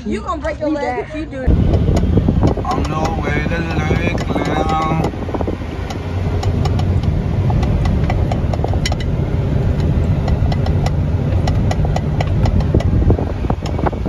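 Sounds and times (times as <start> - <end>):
car cabin rumble: 1.4 - 14.0
light clicks and ticks: 1.9 - 5.2.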